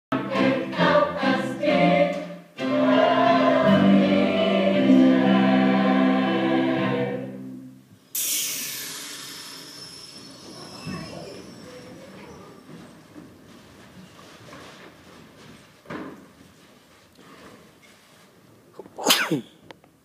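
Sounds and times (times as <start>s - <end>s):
cast singing in chorus: 0.1s - 7.6s.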